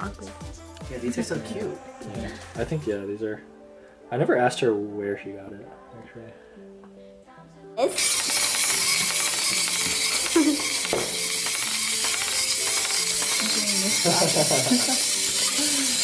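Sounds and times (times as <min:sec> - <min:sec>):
toy mechanism running: 0:07.8 - 0:16.0
plastic balls clicking on wooden table: 0:07.9 - 0:16.0.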